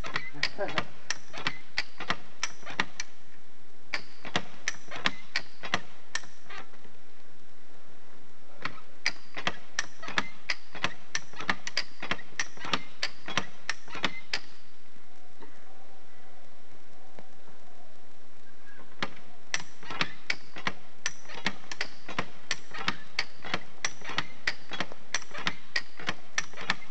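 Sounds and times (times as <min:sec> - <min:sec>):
hand winch clicking: 0:00.0 - 0:03.1, 0:03.9 - 0:06.7, 0:08.6 - 0:14.6, 0:19.0 - 0:26.9.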